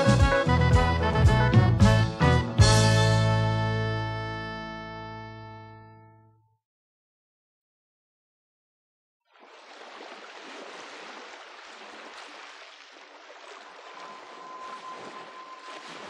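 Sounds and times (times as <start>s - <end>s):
waves washing over sand: 9.4s - 16.0s
faint steady tone: 13.6s - 16.0s.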